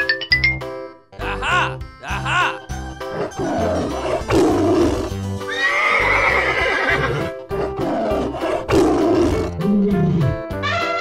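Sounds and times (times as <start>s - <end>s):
upbeat children's music: 0.0s - 5.6s, 10.4s - 11.0s
tiger growl: 3.1s - 5.2s, 7.2s - 10.4s
rough animal call: 3.1s - 10.4s.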